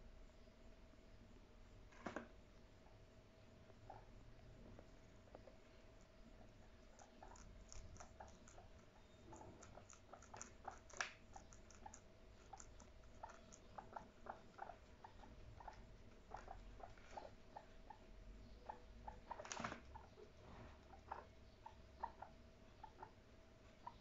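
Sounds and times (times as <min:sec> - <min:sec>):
faint steady hum: 0:00.0 - 0:24.0
guinea pigs crunching lettuce: 0:06.5 - 0:17.3.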